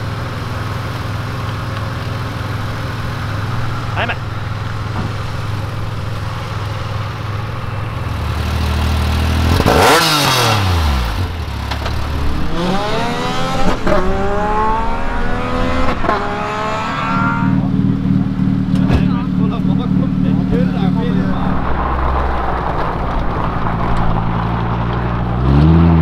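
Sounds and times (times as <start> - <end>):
engine idling: 0.0 - 9.6, 17.6 - 25.3
car engine revving through gears: 8.1 - 26.0
racing car speeding past: 12.3 - 17.9.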